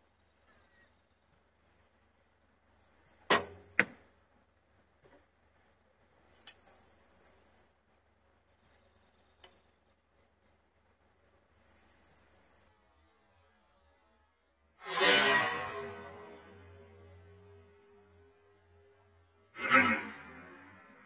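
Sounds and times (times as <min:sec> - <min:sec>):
arrow striking backstop: 0:03.3 - 0:04.0.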